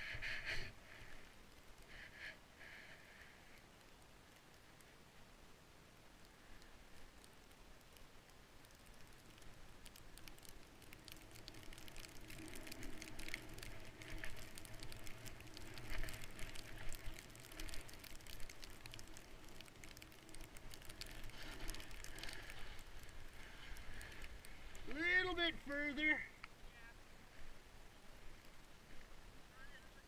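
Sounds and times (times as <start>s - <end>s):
skis hissing through powder snow: 21.1s - 25.1s.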